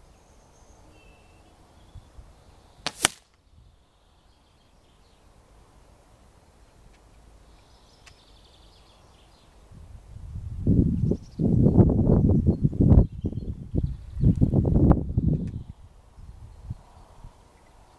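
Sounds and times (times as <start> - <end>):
air rifle shot: 2.8 - 3.3.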